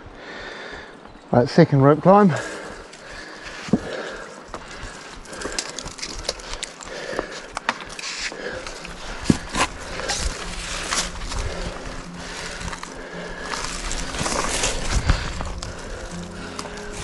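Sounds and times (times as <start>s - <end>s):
person climbing scuffing and rustling: 2.2s - 17.0s.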